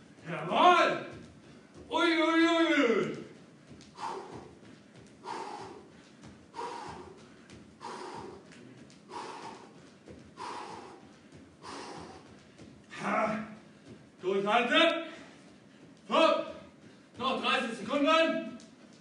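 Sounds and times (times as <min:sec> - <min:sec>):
man breathing hard: 0:03.4 - 0:14.2, 0:15.0 - 0:16.0
forceful exhales: 0:03.9 - 0:04.6, 0:05.2 - 0:09.8, 0:10.4 - 0:12.4.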